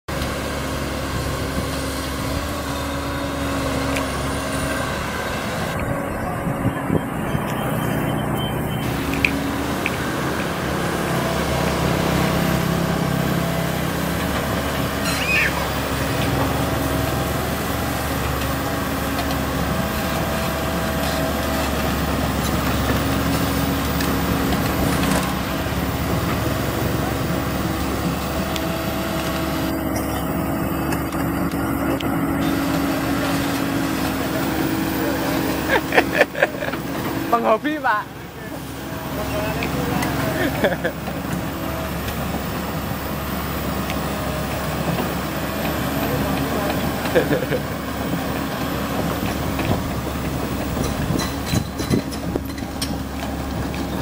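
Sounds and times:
excavator diesel engine running: 0.1s - 54.0s
high squeak: 15.0s - 15.8s.

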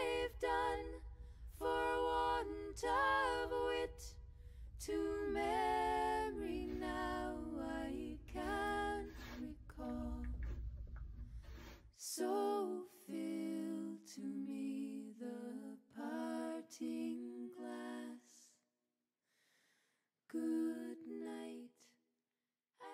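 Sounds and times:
woman singing unaccompanied: 4.8s - 10.6s.

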